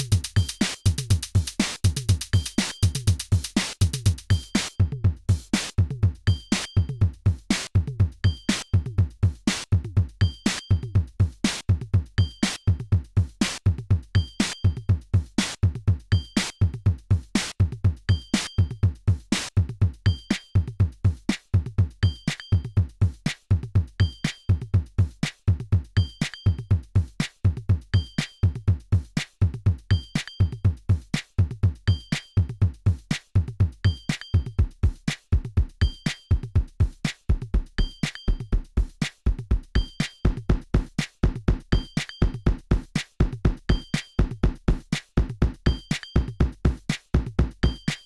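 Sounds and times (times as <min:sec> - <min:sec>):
kick drum thumps: 0:00.0 - 0:47.9.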